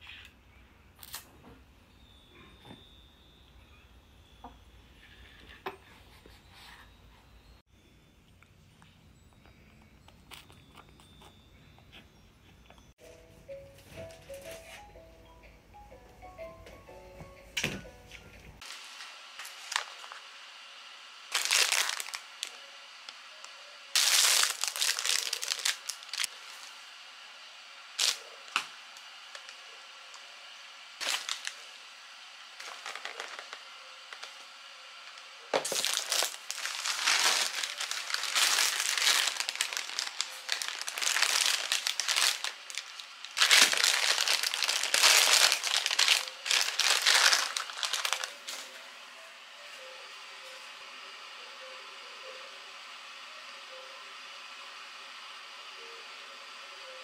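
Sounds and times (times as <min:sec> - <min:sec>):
plastic packaging crinkling: 0:18.6 - 0:20.2, 0:21.3 - 0:23.2, 0:24.0 - 0:26.6, 0:28.0 - 0:28.7, 0:31.0 - 0:31.7, 0:32.6 - 0:34.5, 0:35.1 - 0:48.6.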